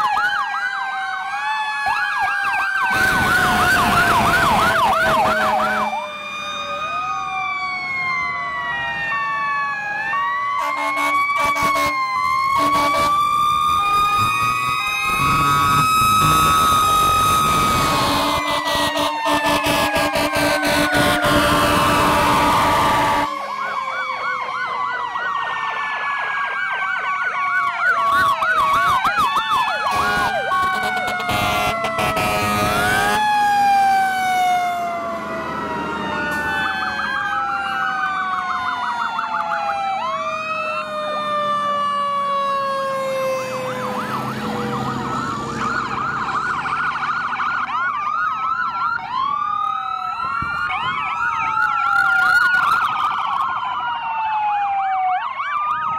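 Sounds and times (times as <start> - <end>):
emergency vehicle sirens wailing: 0.0 - 55.9
siren yelp tones: 0.0 - 55.9.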